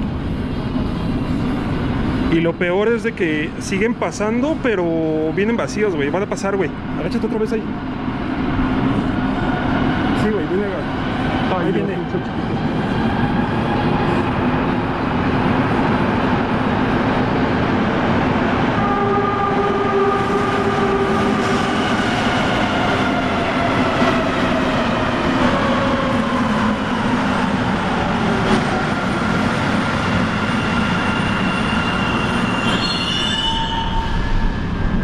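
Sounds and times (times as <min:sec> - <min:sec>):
train rumbling past: 0:00.0 - 0:35.0
brief high squeal: 0:31.5 - 0:34.9.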